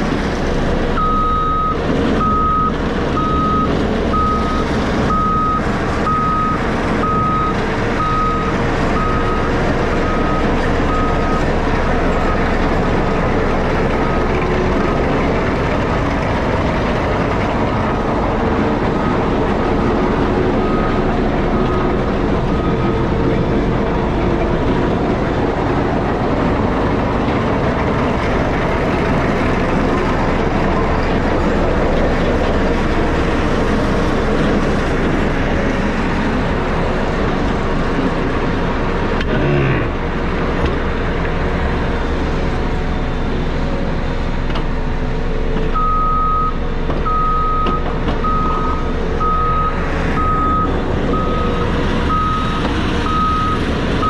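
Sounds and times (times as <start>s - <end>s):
diesel engine running: 0.0s - 54.0s
reversing alarm beeps: 1.0s - 11.5s, 45.7s - 54.0s.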